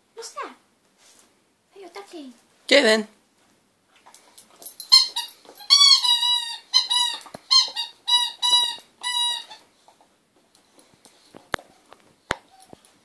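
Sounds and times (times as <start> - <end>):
squeaky dog toy squeaking: 4.8 - 9.7.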